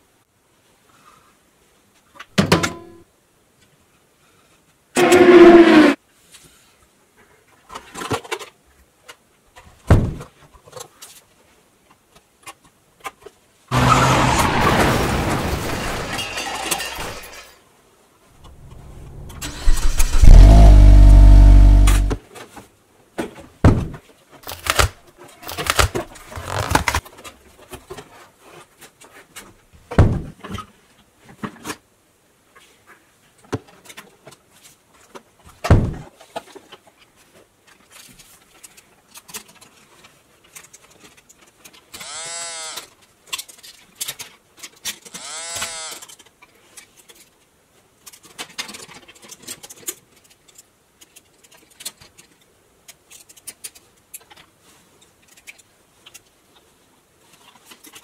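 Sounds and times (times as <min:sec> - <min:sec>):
short rising and falling tones: 0:18.4 - 0:22.2
cardboard and plastic rustling: 0:24.3 - 0:29.6.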